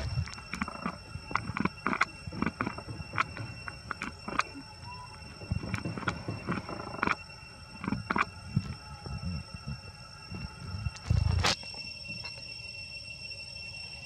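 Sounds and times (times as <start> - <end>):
monkey chewing food: 0.0 - 4.8, 5.4 - 9.7
faint high-pitched tone: 0.0 - 14.0.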